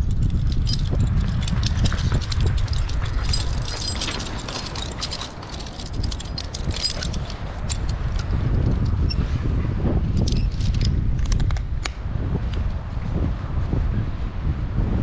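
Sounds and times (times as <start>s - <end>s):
climbing hardware clinking: 0.0s - 9.4s, 10.0s - 11.9s
wind on microphone: 0.0s - 15.0s.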